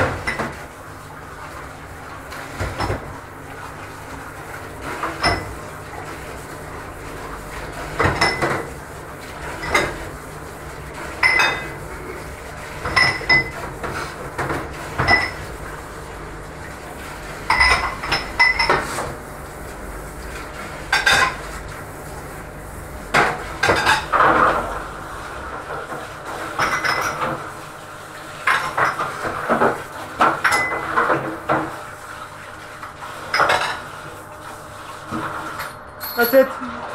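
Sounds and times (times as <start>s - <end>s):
water spraying from tap: 0.0s - 35.8s
ceramic bowls clinking in sink: 5.2s - 5.6s, 8.0s - 8.7s, 11.2s - 11.8s, 12.8s - 13.6s, 15.0s - 15.4s, 17.5s - 18.9s, 26.6s - 27.2s, 30.3s - 31.1s, 33.3s - 33.8s, 35.6s - 36.6s.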